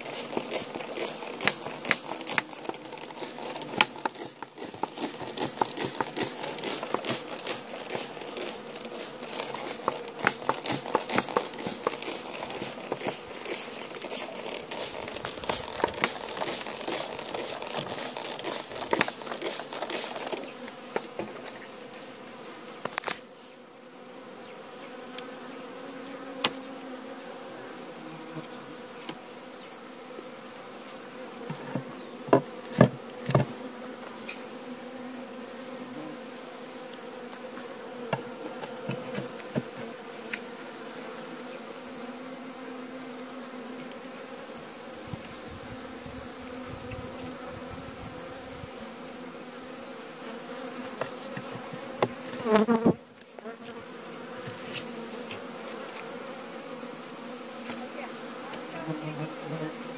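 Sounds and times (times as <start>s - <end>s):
crackling and rustling: 0.0s - 22.0s
honeybees humming: 0.0s - 59.9s.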